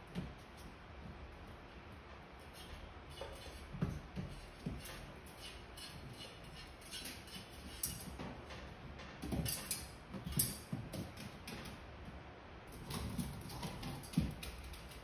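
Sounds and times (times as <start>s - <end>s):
claws tapping on metal bars: 2.4s - 11.8s.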